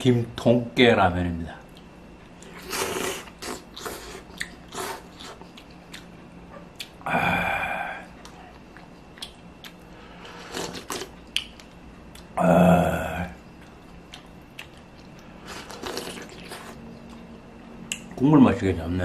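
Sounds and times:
chewing: 1.6 - 7.0, 8.1 - 12.4, 13.5 - 18.2
person slurping noodles: 2.5 - 5.4, 10.2 - 11.1, 15.4 - 16.8.

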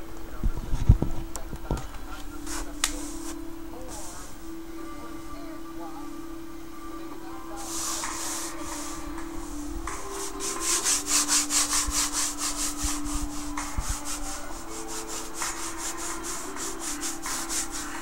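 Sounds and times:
hand rubbing textured surface: 2.1 - 4.4, 7.6 - 18.0.

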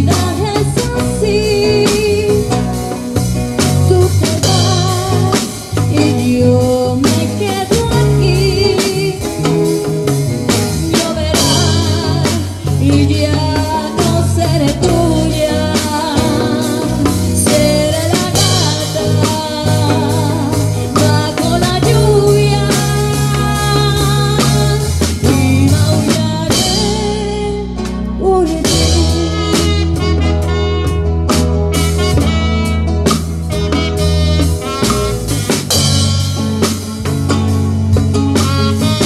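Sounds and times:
woman singing with vibrato: 0.0 - 2.9, 3.6 - 9.7, 10.6 - 30.5
live band playing: 0.0 - 39.0.

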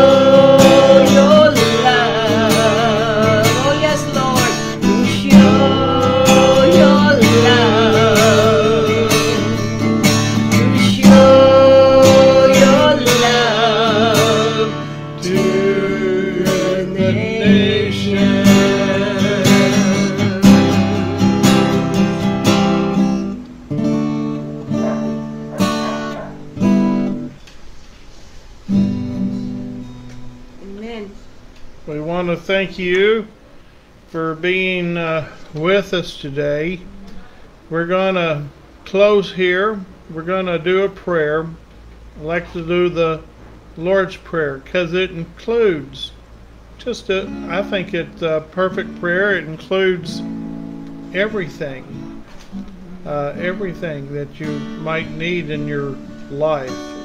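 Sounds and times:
woman singing with vibrato: 0.0 - 9.8, 10.5 - 21.7, 52.5 - 53.1
acoustic guitar strumming: 0.0 - 27.8, 28.6 - 57.0.

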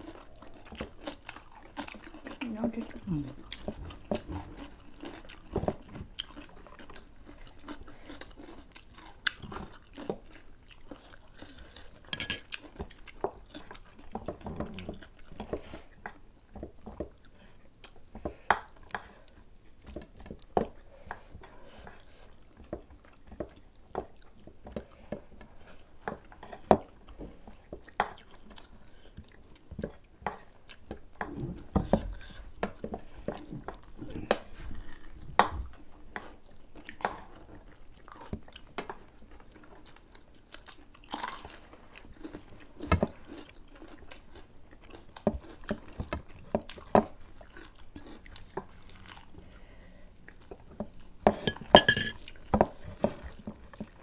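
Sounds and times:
chewing and crunching food: 0.0 - 54.0
spoon clicking on plates: 51.4 - 52.2.

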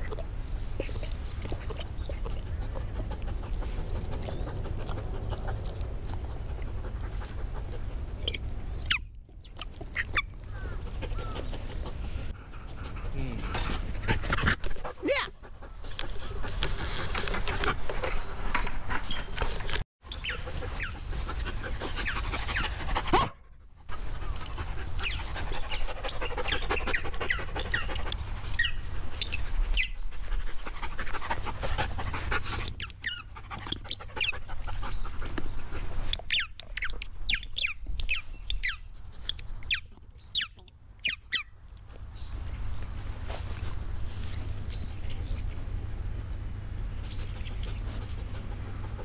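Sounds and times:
dog chewing: 0.0 - 7.8.

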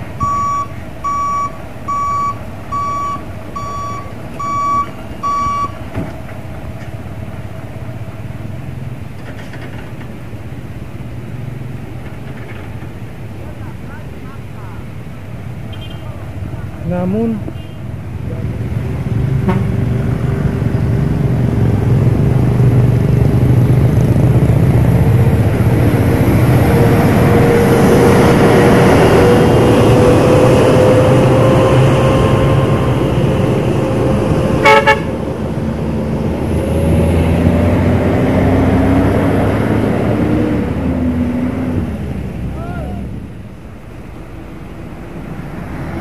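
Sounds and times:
diesel vehicles droning: 0.0 - 46.0
short horn toot: 19.4 - 19.7.

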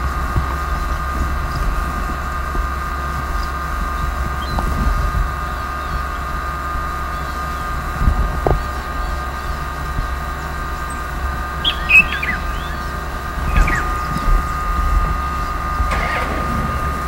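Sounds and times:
high whine: 5.4 - 17.0
short chirps: 11.6 - 14.0.

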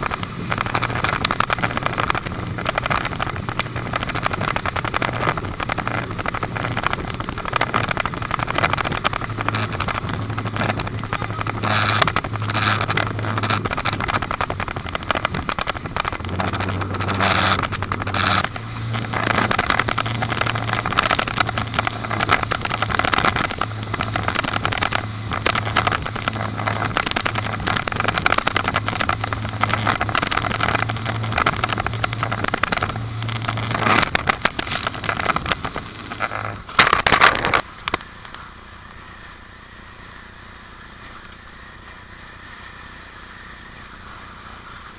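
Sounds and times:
rushing wind: 0.0 - 38.3
motorboat engine drone: 0.0 - 44.9
water spray: 38.0 - 44.9.

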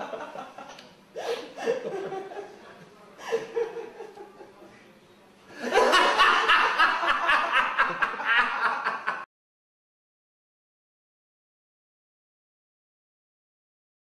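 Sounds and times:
person laughing in rapid bursts: 5.7 - 9.3.

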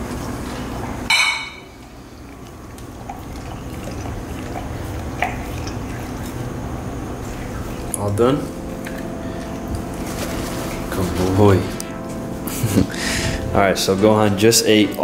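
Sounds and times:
dog licking and slurping from bowl: 1.8 - 8.1.

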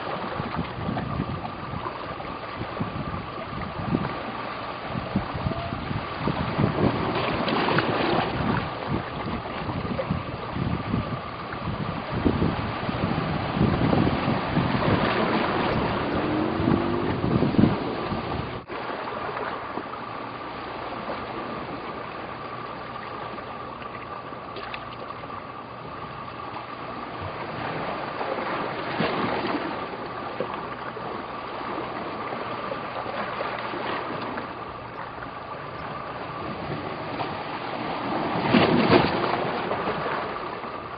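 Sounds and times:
constant high drone: 0.0 - 40.9
steady outdoor rush: 2.6 - 18.7.

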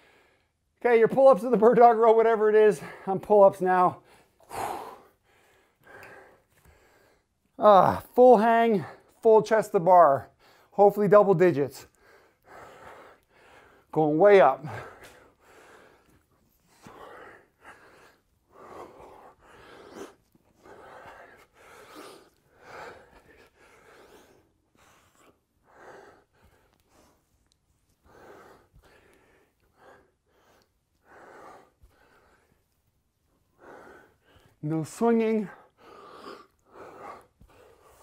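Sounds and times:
man breathing hard: 0.0 - 0.8, 4.0 - 8.0, 10.3 - 10.8, 11.8 - 14.0, 14.6 - 27.3, 27.9 - 38.0.

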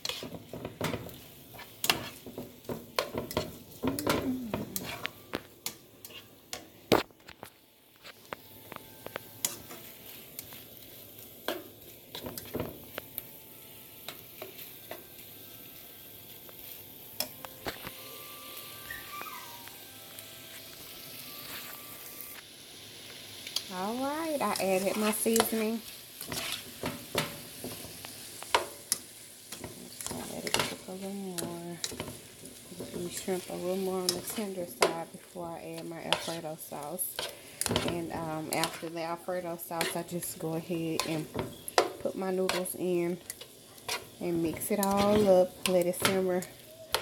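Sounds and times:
spatula tapping and scraping pan: 0.0 - 7.5, 11.4 - 13.1, 26.2 - 35.1, 35.7 - 36.5, 37.1 - 39.0, 39.7 - 47.0
food sizzling in a frying pan: 0.0 - 47.0.

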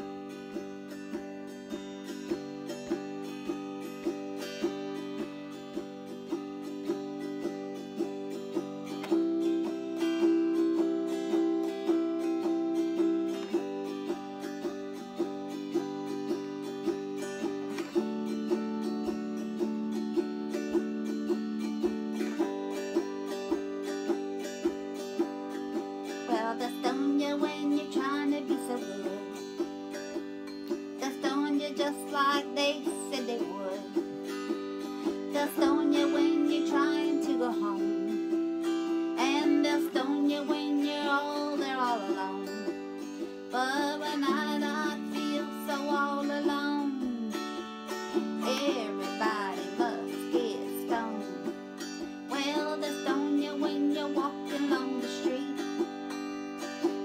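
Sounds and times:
autoharp strumming chords: 0.0 - 57.0
woman singing: 25.2 - 56.3.

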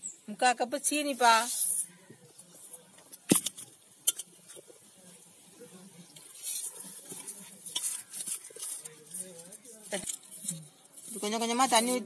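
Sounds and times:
flour and sugar rustling in bowl: 5.6 - 12.0.

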